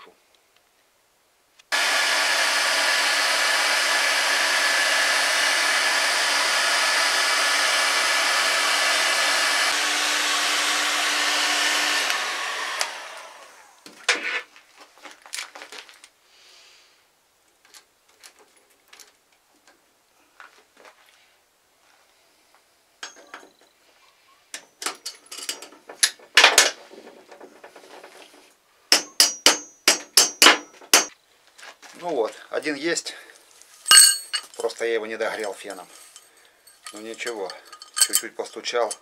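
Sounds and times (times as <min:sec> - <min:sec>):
heat gun blowing: 0:01.7 - 0:13.8.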